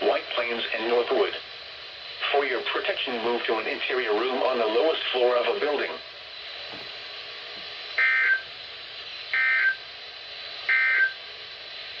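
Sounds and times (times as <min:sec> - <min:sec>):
radio hiss: 0:00.0 - 0:12.0
two-tone digital screeches: 0:08.0 - 0:08.4, 0:09.4 - 0:09.8, 0:10.7 - 0:11.2.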